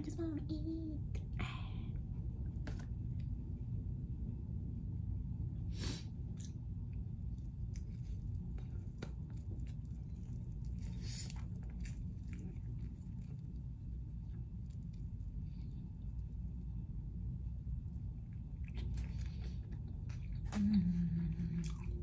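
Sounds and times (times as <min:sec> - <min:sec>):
low steady hum: 0:00.0 - 0:22.0
person biting and chewing: 0:18.4 - 0:20.6.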